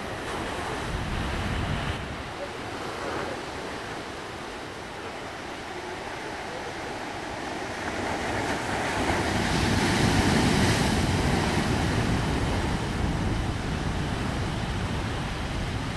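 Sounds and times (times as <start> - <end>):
foaming wave wash: 0.0 - 15.9.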